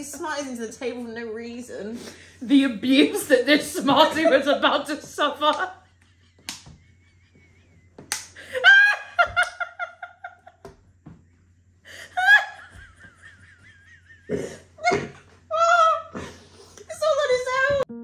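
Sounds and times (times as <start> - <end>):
woman laughing hard: 5.7 - 10.7, 11.9 - 16.4.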